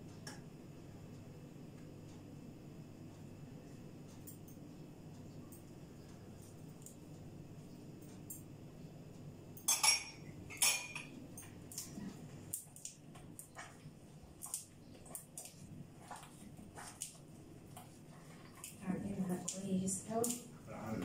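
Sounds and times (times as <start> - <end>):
dough kneaded in a metal bowl: 11.6 - 20.2.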